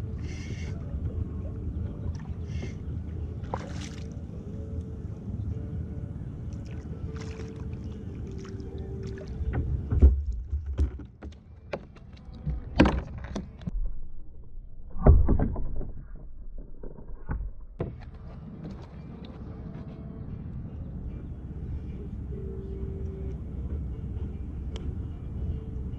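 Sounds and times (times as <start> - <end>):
water and wind rumbling: 0.0 - 10.9
fishing rod knocks and clatters: 9.5 - 13.7.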